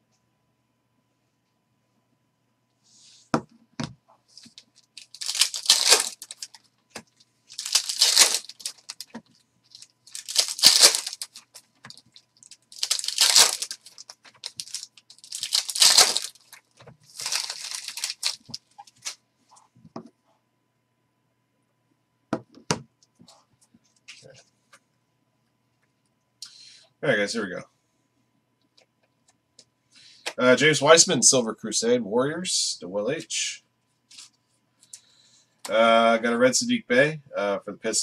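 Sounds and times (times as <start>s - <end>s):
foil wrappers tearing: 4.5s - 6.6s, 7.5s - 19.2s.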